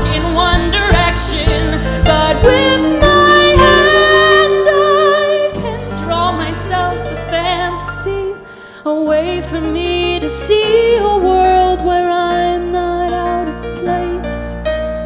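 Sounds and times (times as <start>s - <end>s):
live band playing: 0.0s - 8.7s
woman singing: 0.0s - 14.9s.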